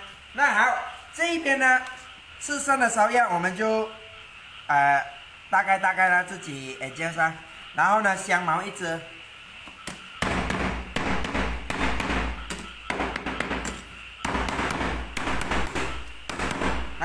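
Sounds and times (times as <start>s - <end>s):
cleaver chopping on a board: 10.2s - 17.0s.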